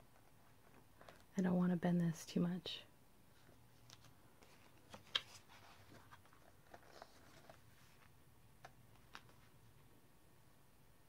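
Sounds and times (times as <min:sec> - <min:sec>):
paper pages rustling: 0:03.4 - 0:09.6.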